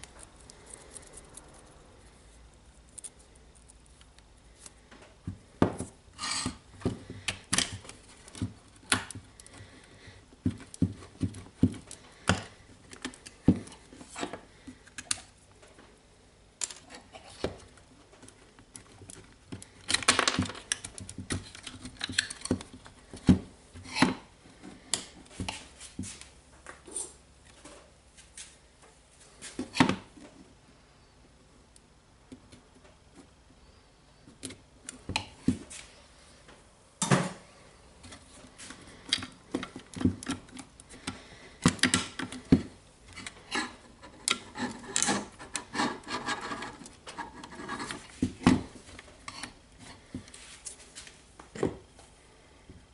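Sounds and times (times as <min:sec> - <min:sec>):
plastic parts on wooden table: 0:00.0 - 0:15.9, 0:16.6 - 0:26.2, 0:37.0 - 0:50.8.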